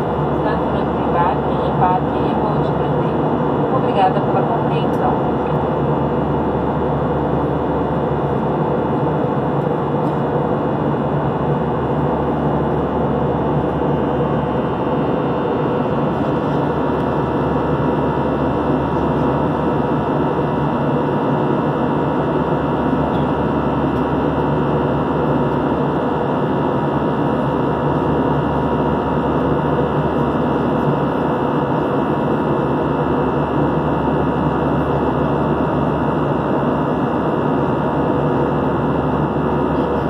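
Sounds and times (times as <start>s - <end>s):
airplane cabin engine drone: 0.0s - 40.0s.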